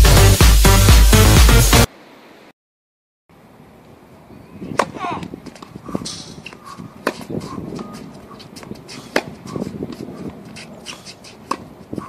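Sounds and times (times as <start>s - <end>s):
player moving on hard court: 4.8s - 12.0s
tennis racket hitting ball: 4.8s - 12.0s.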